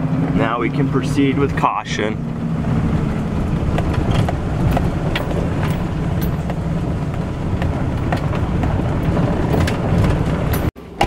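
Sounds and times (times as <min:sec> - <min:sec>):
truck engine and tyres rumbling: 0:00.0 - 0:11.0
clicks and rattles in cab: 0:02.2 - 0:11.0.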